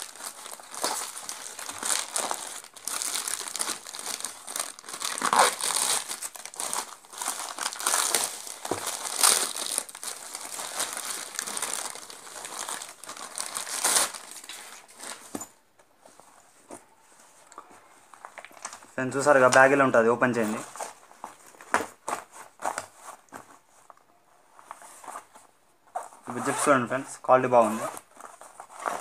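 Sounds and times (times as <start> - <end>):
plastic mailer crinkling: 0.0 - 15.3.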